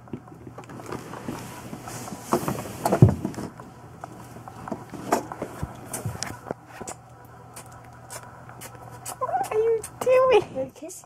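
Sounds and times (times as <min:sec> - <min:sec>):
close rustling of clothing and bedding: 0:00.3 - 0:06.8.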